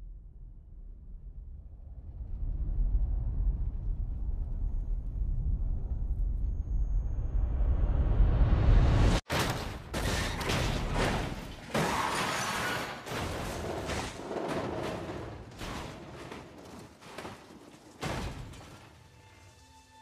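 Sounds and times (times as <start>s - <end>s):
film music: 18.6s - 20.0s.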